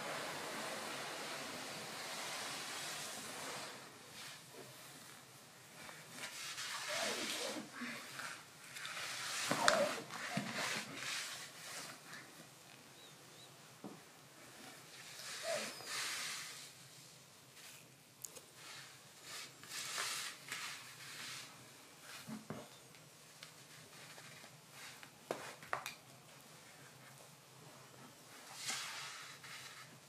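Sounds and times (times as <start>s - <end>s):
bedsheets rustling: 0.0s - 13.0s.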